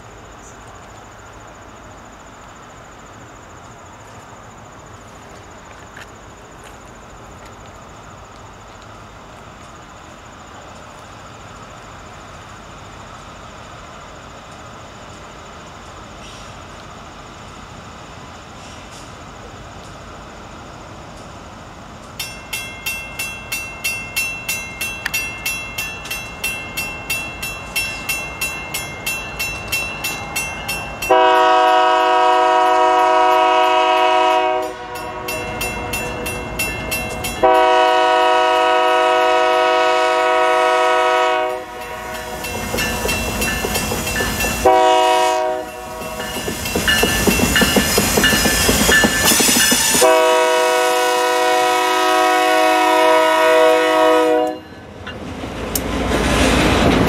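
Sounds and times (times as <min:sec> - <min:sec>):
locomotive bell ringing: 0:22.2 - 0:31.8, 0:34.9 - 0:37.6, 0:41.7 - 0:50.2
locomotive horn blasts: 0:31.1 - 0:36.2, 0:37.4 - 0:42.8, 0:44.4 - 0:46.4, 0:49.2 - 0:54.8
train wheel clatter: 0:41.5 - 0:50.6.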